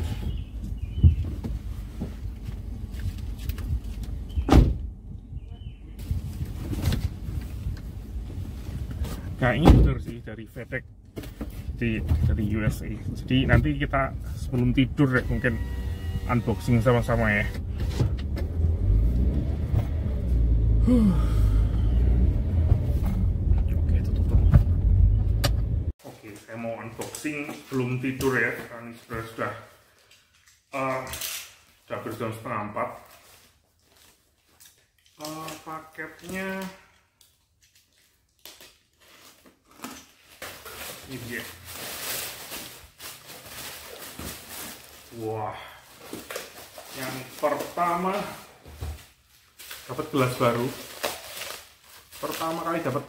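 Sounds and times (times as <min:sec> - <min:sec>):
car engine and road noise: 0:00.0 - 0:26.0
loud thump: 0:09.6 - 0:10.1
cardboard parcel rustling: 0:32.0 - 0:36.8, 0:37.5 - 0:53.0.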